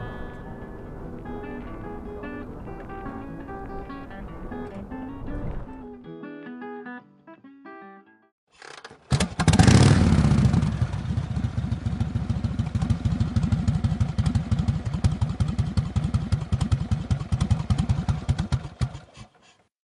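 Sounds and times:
motorcycle engine idling: 9.2 - 19.4.

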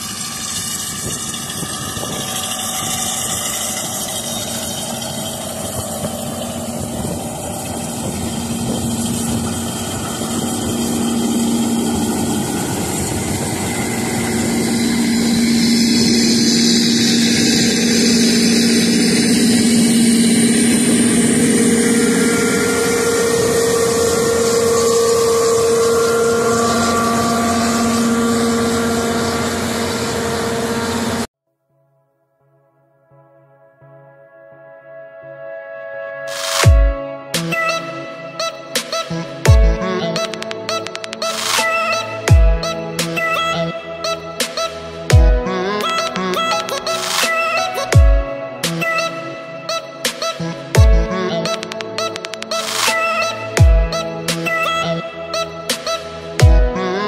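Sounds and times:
combine harvester drone: 0.0 - 31.3.

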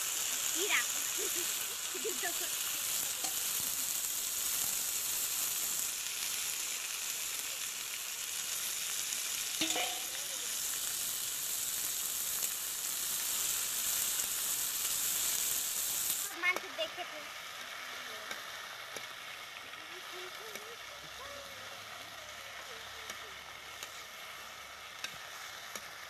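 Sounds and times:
insects sizzling in hot oil: 0.0 - 26.0
spatula stirring in pan: 0.4 - 6.6, 9.3 - 16.6, 22.6 - 26.0.

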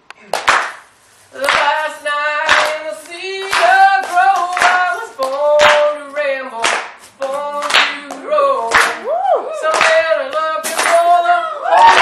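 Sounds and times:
sharp hand claps: 0.3 - 1.7, 2.5 - 2.8, 3.4 - 5.9, 6.6 - 9.0, 9.7 - 11.1.

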